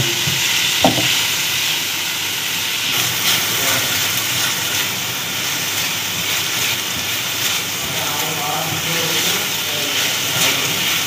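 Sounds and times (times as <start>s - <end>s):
spatula stirring in pan: 0.0s - 11.0s
vegetables sizzling in oil: 0.0s - 11.0s.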